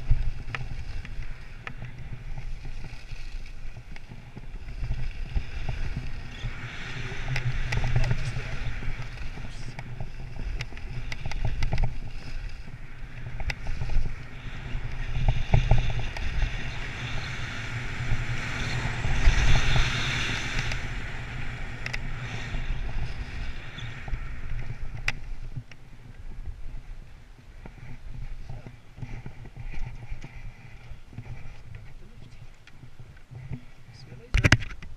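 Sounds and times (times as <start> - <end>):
wind rumble on microphone: 0.0 - 34.9
skis hissing on snow: 5.2 - 9.6.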